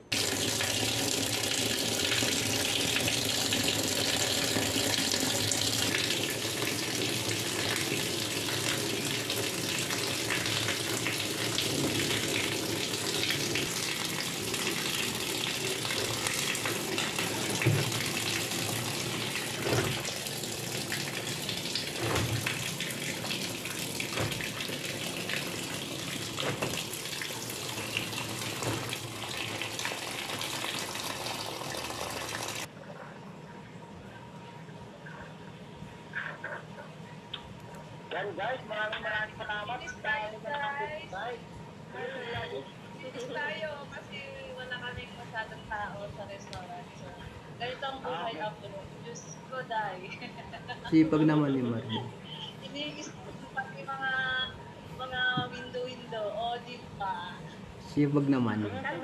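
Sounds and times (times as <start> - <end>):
water running in washing machine: 0.0 - 32.7.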